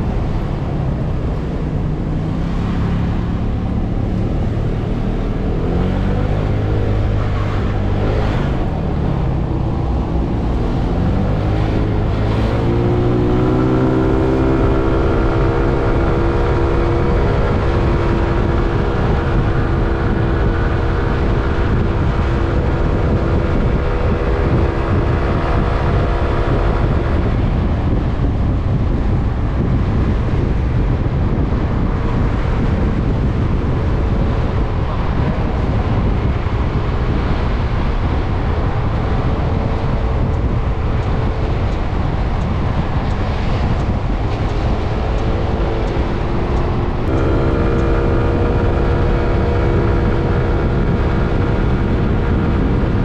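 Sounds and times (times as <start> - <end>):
scooter engine drone: 0.0 - 53.0
wind buffeting microphone: 0.0 - 53.0.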